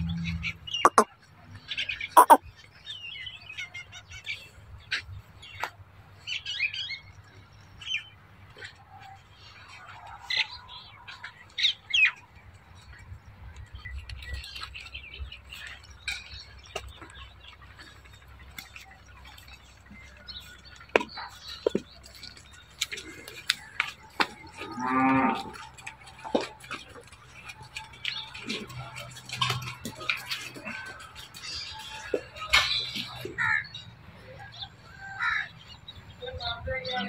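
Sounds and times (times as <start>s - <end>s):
birds chirping: 0.0s - 1.1s, 1.8s - 5.6s, 13.6s - 37.0s
cow mooing: 24.6s - 25.6s.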